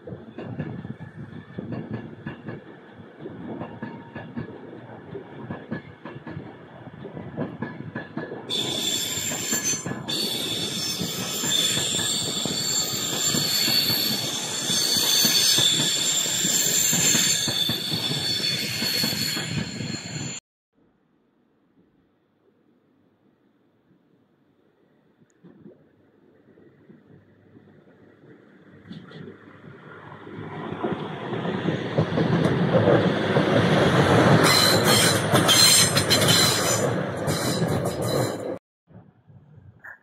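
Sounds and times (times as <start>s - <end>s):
train wheels rumbling: 0.0s - 20.4s, 26.9s - 38.6s
high-pitched wheel squeal: 8.5s - 20.4s, 34.4s - 38.5s.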